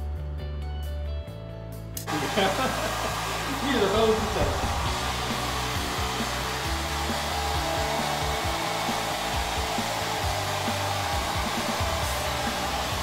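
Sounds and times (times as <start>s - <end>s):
hair dryer blowing: 2.0s - 13.0s.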